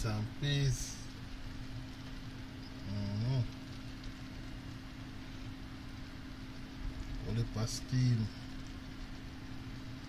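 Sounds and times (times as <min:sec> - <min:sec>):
constant low hum: 0:00.0 - 0:10.0
even hiss: 0:00.0 - 0:10.0.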